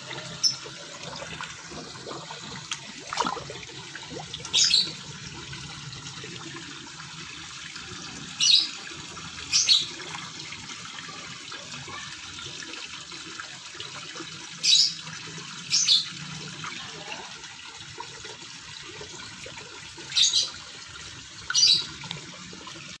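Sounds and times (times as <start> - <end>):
running water: 0.0 - 23.0
fish splashing at water surface: 0.2 - 5.1.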